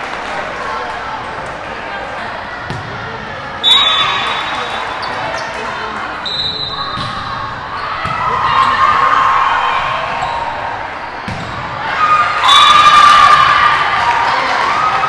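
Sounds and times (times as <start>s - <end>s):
crowd cheering: 3.6s - 15.0s
volleyball smacks: 11.2s - 11.6s
people shouting: 11.8s - 15.0s.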